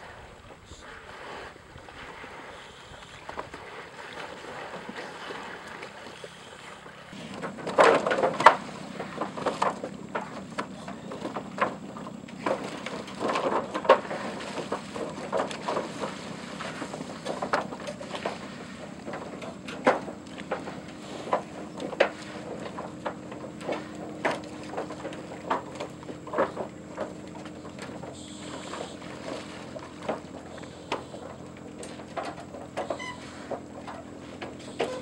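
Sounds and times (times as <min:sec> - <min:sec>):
rush of wind and water: 0:00.0 - 0:35.0
water splashing: 0:00.0 - 0:35.0
hooves knocking on wooden ramp: 0:07.2 - 0:35.0.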